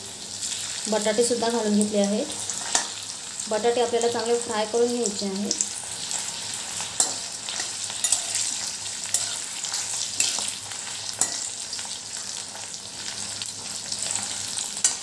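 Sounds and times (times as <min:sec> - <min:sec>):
potatoes sizzling in oil: 0:00.0 - 0:15.0
spatula scraping pan: 0:06.0 - 0:11.9.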